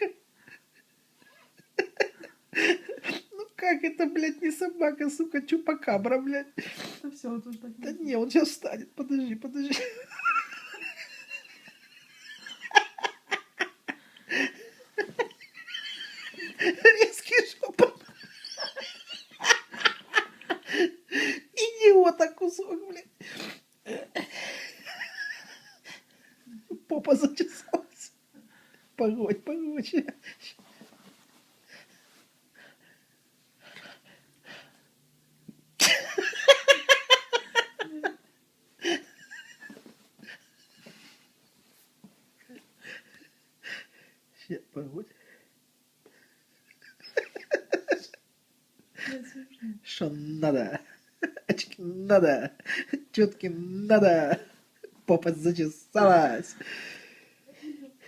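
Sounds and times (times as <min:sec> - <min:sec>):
person laughing: 0:09.7 - 0:21.4, 0:35.8 - 0:38.2, 0:46.7 - 0:48.2
faint breathing: 0:13.9 - 0:14.9, 0:24.2 - 0:24.8, 0:28.4 - 0:29.0, 0:42.7 - 0:44.3, 0:45.1 - 0:46.5, 0:56.5 - 0:58.0.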